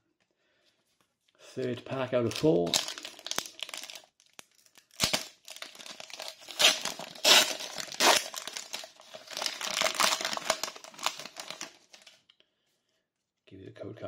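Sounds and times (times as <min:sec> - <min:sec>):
foil wrapper tearing and crinkling: 0:02.2 - 0:12.2.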